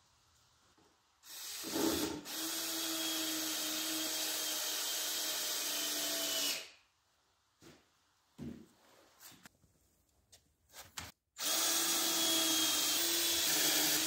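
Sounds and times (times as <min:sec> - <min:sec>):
cordless drill whining into wood: 0:01.2 - 0:06.7, 0:11.4 - 0:14.0.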